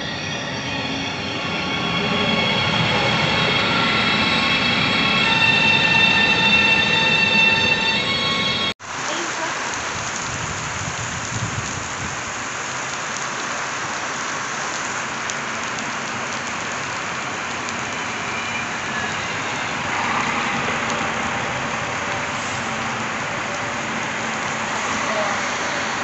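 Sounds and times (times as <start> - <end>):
diesel railcar running past: 0.0 - 8.7, 17.4 - 26.0
heavy rain falling: 8.8 - 26.0.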